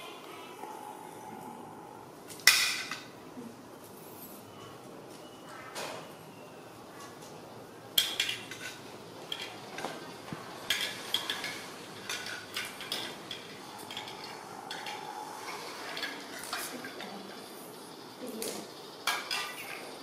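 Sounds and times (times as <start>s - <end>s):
plastic toys clattering on tile: 8.0s - 15.1s, 15.8s - 17.4s, 18.3s - 20.0s.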